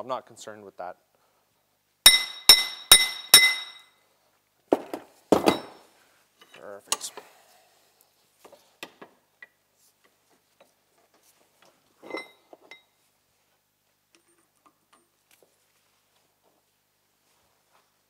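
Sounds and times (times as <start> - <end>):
metallic clink: 2.1 - 4.0, 12.0 - 12.9.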